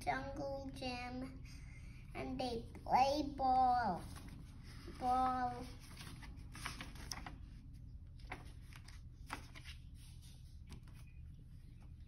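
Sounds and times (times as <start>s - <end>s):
paper page rustling: 4.0s - 12.0s
soft paper clicks: 6.0s - 7.4s.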